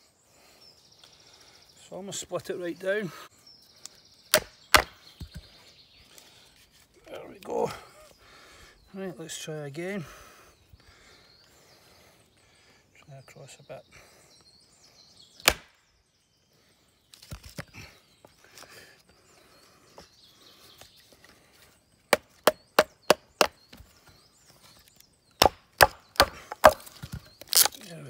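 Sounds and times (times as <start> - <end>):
log splitting: 4.3 - 5.5, 15.4 - 15.7, 24.7 - 28.0.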